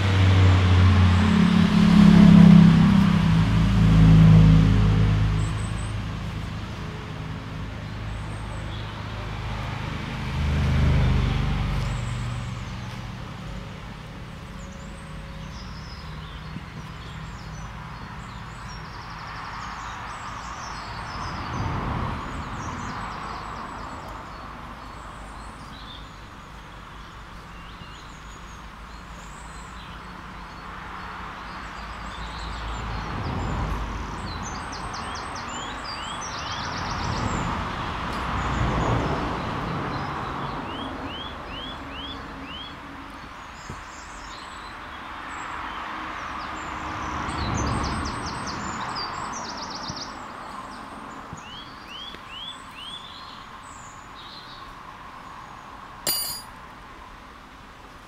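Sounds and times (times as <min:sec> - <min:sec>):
vehicles passing: 0:00.0 - 0:58.0
small birds chirping: 0:22.2 - 0:33.1, 0:48.0 - 0:56.3.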